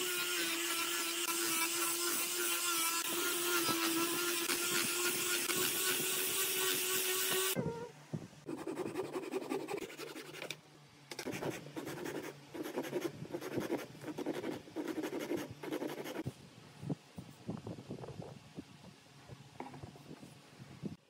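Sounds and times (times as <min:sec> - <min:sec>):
angle grinder sanding wood: 0:00.0 - 0:07.6.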